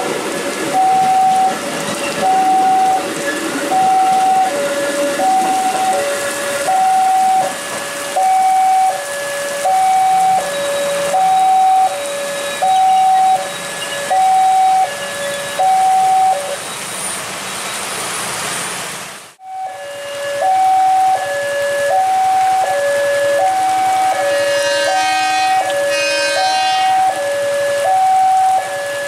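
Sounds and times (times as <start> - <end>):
heavy rain hiss: 0.0 - 27.8
two-tone electronic crossing bell: 12.6 - 16.6.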